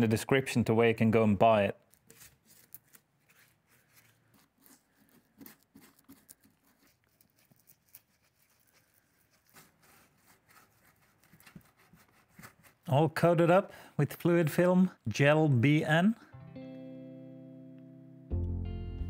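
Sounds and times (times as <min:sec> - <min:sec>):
brush dabbing on metal: 0:01.9 - 0:13.4.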